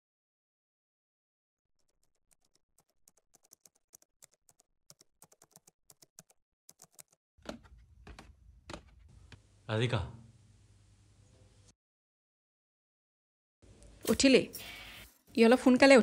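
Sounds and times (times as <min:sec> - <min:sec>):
typing on laptop keyboard: 0:01.8 - 0:07.2.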